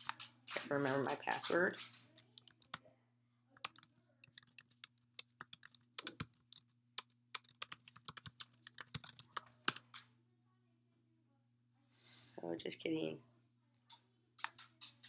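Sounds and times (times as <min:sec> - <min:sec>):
typing on keyboard: 0:00.0 - 0:02.8, 0:03.6 - 0:10.0
faint low hum: 0:00.0 - 0:15.0.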